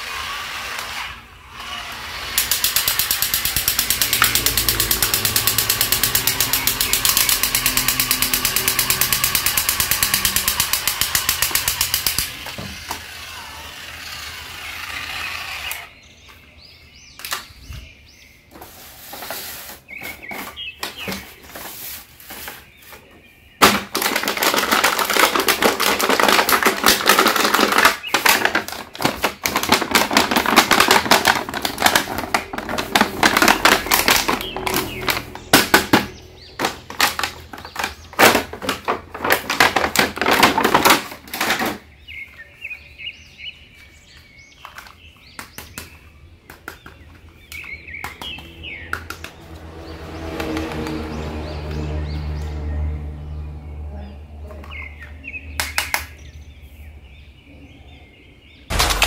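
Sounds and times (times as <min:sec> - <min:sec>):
plastic packaging crinkling: 0:23.9 - 0:35.3.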